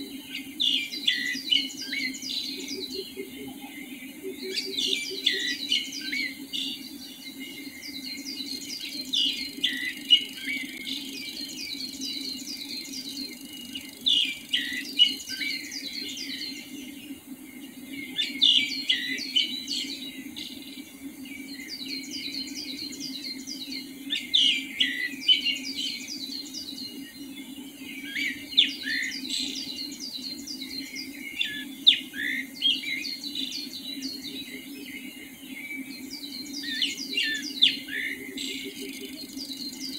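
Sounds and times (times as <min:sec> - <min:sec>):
songbirds chirping: 0:00.0 - 0:39.9.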